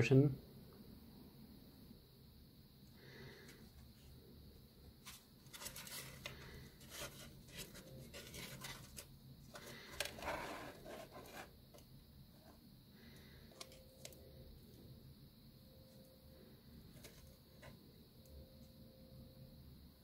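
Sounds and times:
paper crinkling and rustling: 5.0 - 11.5
small clicks and scrapes: 5.0 - 11.8.

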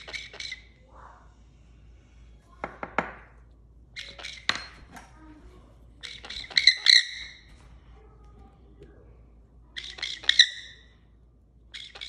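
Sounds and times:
parrot squawking harshly: 6.0 - 7.4.

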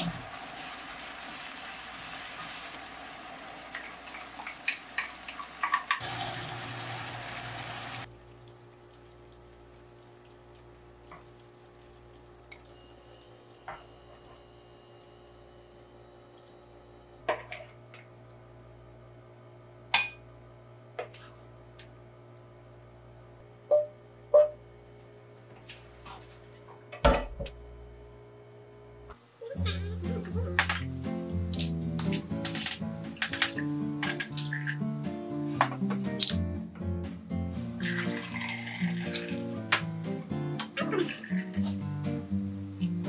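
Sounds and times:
food sizzling in a frying pan: 0.0 - 8.1, 37.8 - 39.4.

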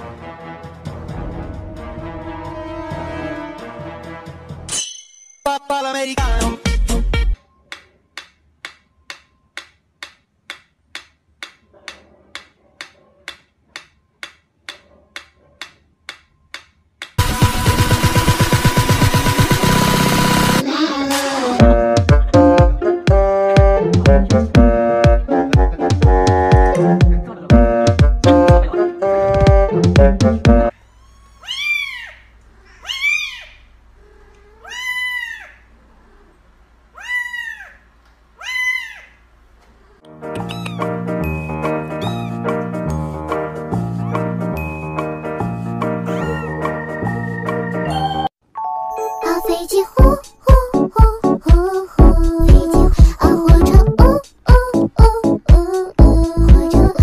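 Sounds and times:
metronome ticking: 7.7 - 12.5
kitten meowing: 30.9 - 33.6, 34.4 - 35.5, 40.4 - 40.9, 42.0 - 42.4, 46.1 - 46.7.

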